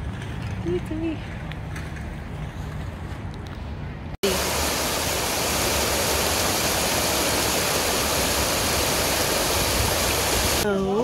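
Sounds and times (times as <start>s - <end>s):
stream rushing over stones: 4.2s - 10.6s.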